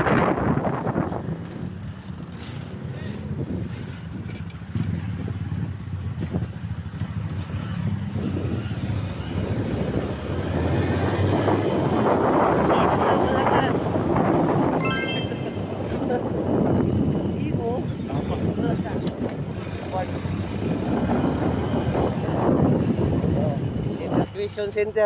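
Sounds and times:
wind rushing over microphone: 0:00.0 - 0:01.8, 0:09.4 - 0:14.8, 0:20.6 - 0:24.3.

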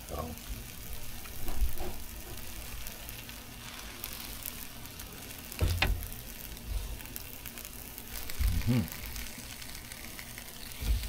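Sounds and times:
food sizzling on a griddle: 0:00.0 - 0:11.0
thump: 0:05.6 - 0:06.1.

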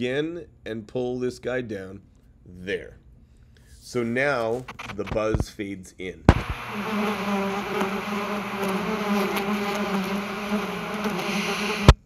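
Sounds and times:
bee buzzing: 0:06.4 - 0:12.0.

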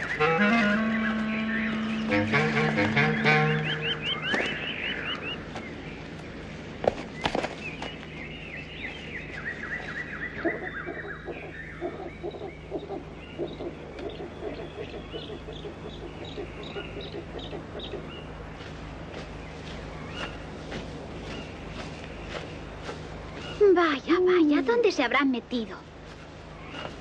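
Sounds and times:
owl hooting: 0:00.0 - 0:05.4, 0:09.8 - 0:18.3
small birds chirping: 0:00.0 - 0:27.0.

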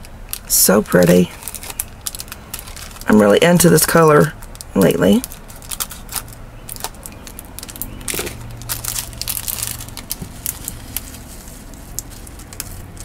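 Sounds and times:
plastic bag crinkling: 0:00.0 - 0:13.0.

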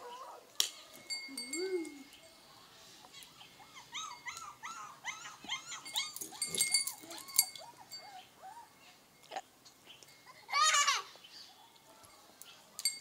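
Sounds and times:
puppies whimpering: 0:03.0 - 0:09.0.

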